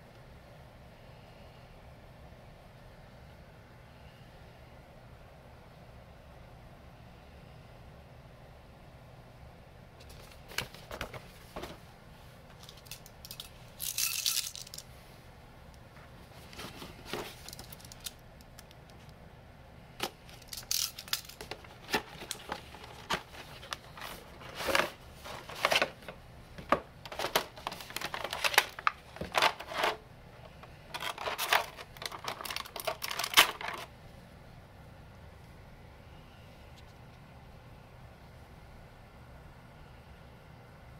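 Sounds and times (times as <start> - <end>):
cardboard box rustling: 16.4 - 17.7, 21.4 - 30.0.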